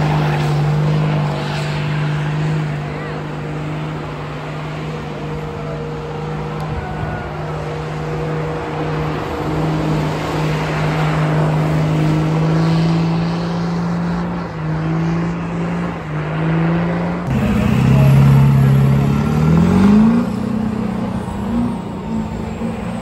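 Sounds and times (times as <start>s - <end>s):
truck engine at high revs: 0.0s - 23.0s.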